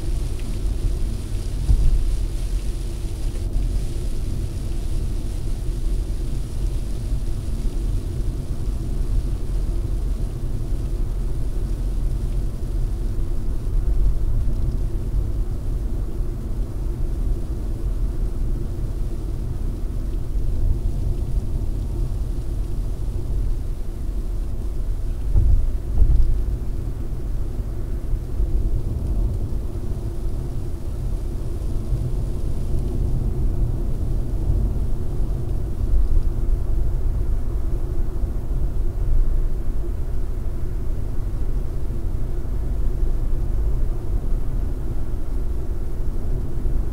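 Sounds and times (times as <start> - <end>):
car tyre and road noise: 0.0 - 39.0
car bumps: 25.4 - 26.2.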